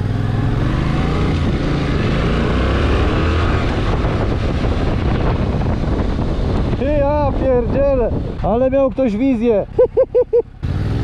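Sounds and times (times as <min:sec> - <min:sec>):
wind rushing over microphone: 0:00.0 - 0:09.8
motorcycle engine pulling away: 0:10.4 - 0:11.0.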